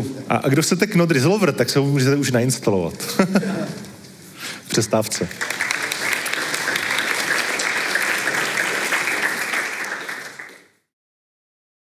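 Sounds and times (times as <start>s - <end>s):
audience applauding: 5.2s - 10.9s.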